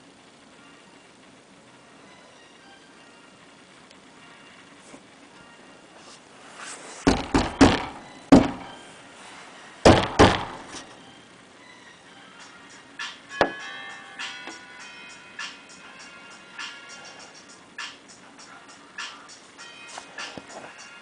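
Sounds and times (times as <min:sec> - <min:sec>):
sharp hollow thuds: 0:09.8 - 0:10.6.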